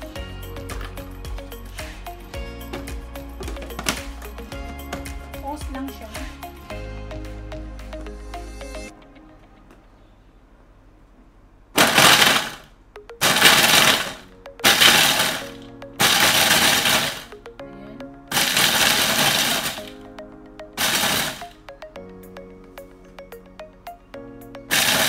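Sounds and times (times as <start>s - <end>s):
food processor grinding: 24.7s - 25.0s.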